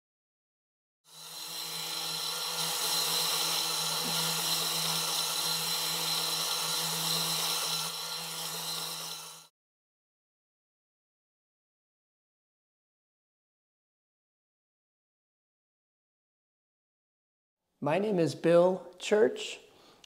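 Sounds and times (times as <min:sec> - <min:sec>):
small electric motor whining: 0:01.1 - 0:09.5.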